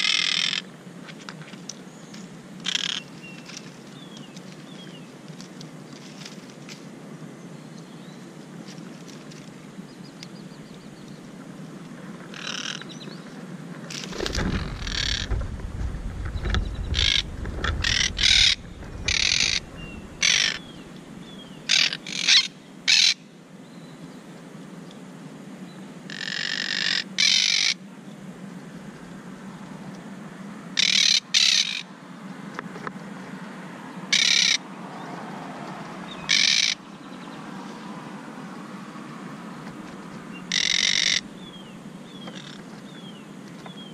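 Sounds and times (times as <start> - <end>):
parakeets squawking: 14.1 - 15.4, 16.4 - 23.2, 36.3 - 36.8, 40.5 - 41.3.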